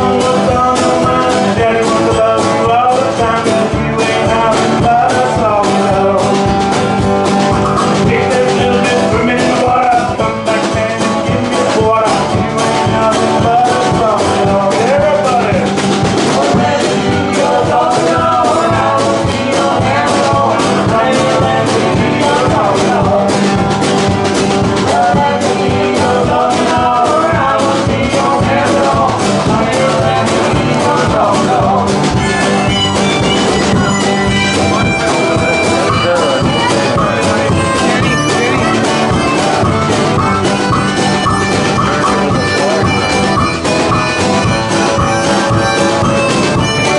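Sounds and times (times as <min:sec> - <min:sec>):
acoustic band playing: 0:00.0 - 0:46.9
woman singing: 0:16.3 - 0:23.6, 0:24.9 - 0:32.6.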